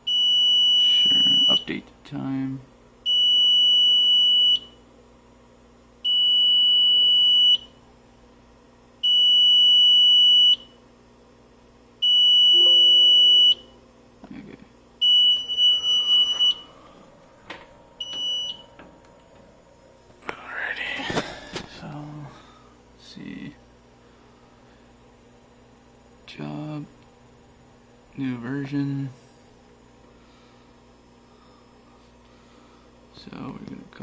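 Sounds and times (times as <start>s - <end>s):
alarm panel buzzer beeping: 12.0s - 13.7s, 15.0s - 16.6s, 18.0s - 18.7s.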